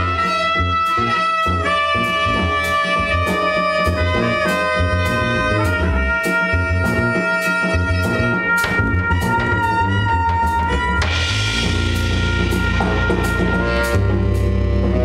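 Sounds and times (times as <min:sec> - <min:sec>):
electric bass: 0:00.0 - 0:15.0
saxophone long notes: 0:00.0 - 0:15.0
drum kit cymbal pulse: 0:11.0 - 0:15.0.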